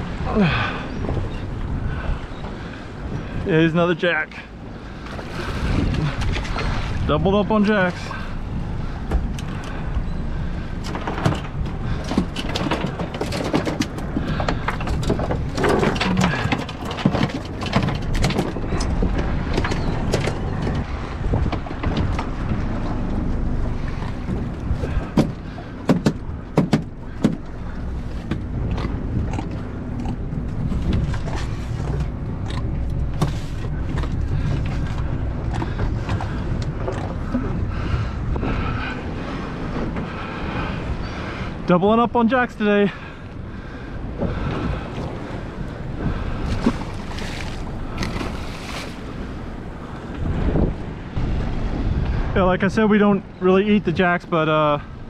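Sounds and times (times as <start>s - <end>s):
wind buffeting microphone: 0.0s - 55.0s
fish and gear knocking on deck: 25.1s - 27.4s.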